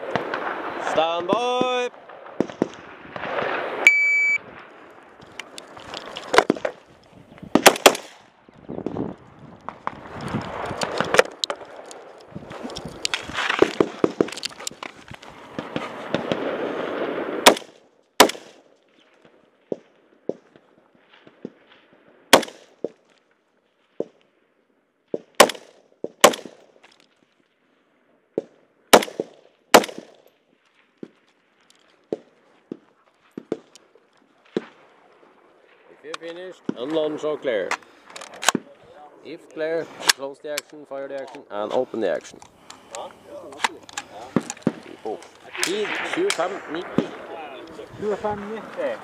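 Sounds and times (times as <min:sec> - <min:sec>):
rifle shots: 0:00.0 - 0:04.7, 0:07.5 - 0:08.3, 0:15.5 - 0:18.7, 0:22.3 - 0:22.9, 0:25.3 - 0:26.6, 0:28.9 - 0:30.2
rustling and scuffing: 0:05.5 - 0:07.5, 0:12.0 - 0:16.2.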